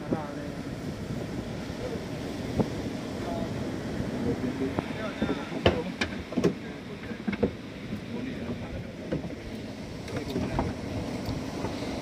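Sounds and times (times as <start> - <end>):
boat engine rumble: 0.0 - 12.0
wind: 0.0 - 12.0.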